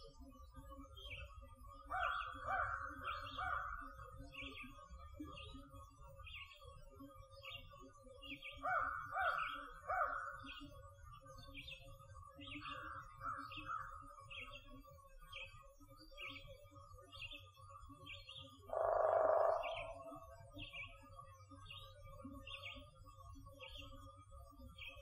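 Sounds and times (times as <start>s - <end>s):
crows cawing: 1.9s - 3.7s, 8.7s - 10.3s, 18.7s - 20.3s
songbird repeating high note: 18.7s - 20.3s.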